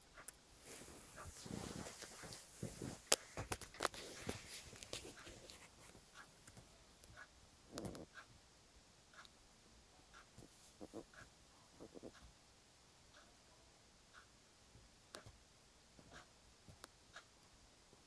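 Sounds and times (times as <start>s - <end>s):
paws rustling on fake fur: 0.6s - 6.0s.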